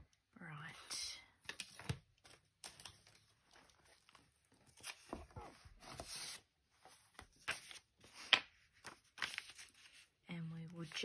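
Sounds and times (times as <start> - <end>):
paper rustling: 1.5 - 10.2.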